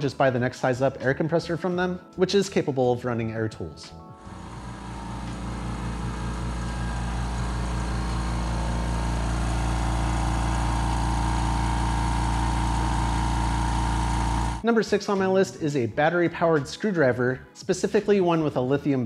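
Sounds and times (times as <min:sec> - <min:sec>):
air compressor running: 0:04.2 - 0:14.6.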